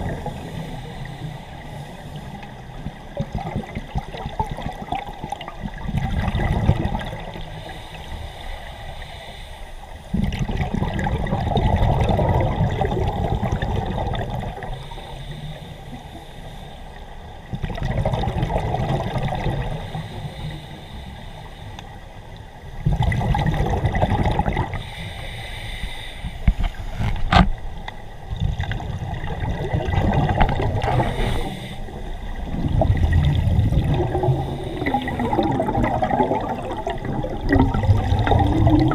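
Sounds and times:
underwater breath bubbling: 0:00.0 - 0:21.9, 0:22.8 - 0:27.2, 0:28.3 - 0:38.9.

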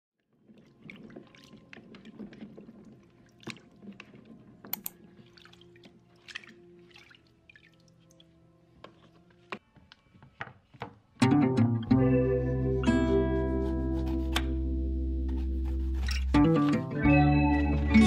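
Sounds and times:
hands splashing in water: 0:00.5 - 0:08.3.

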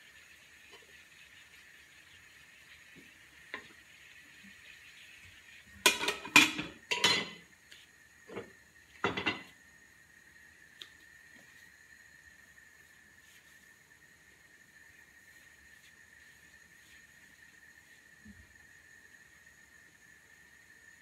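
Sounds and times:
faint steady hiss: 0:00.0 - 0:21.0
glass lid clattering on metal pan: 0:05.8 - 0:07.4, 0:09.0 - 0:09.5.

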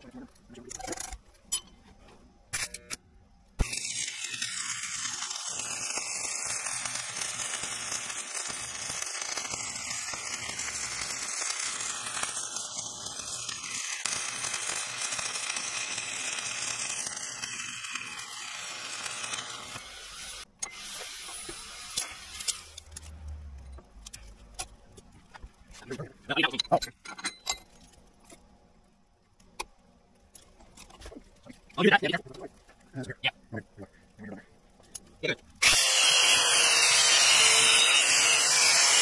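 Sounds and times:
welding arc crackling: 0:03.6 - 0:24.6, 0:35.2 - 0:39.0.

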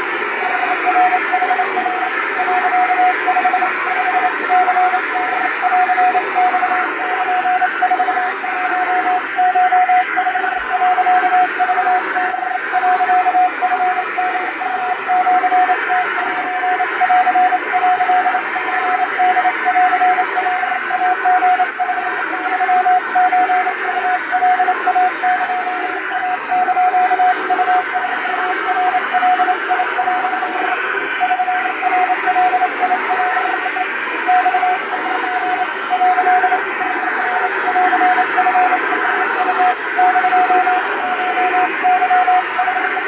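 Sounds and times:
morse code beeps: 0:00.0 - 0:43.0
radio static: 0:25.4 - 0:43.0.

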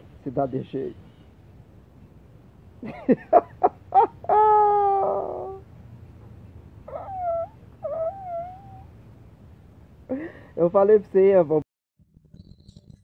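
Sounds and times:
animal yelping and wailing: 0:04.0 - 0:05.7, 0:06.9 - 0:08.9.

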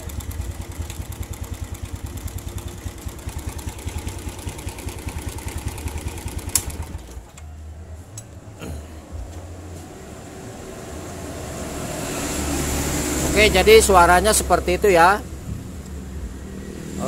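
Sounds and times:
engine idling with rough clattering: 0:00.0 - 0:07.6.

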